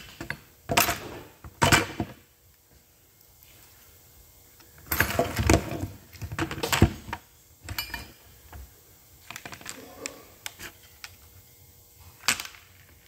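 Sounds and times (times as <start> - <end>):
metal parts and tools clattering: 7.7 - 8.2.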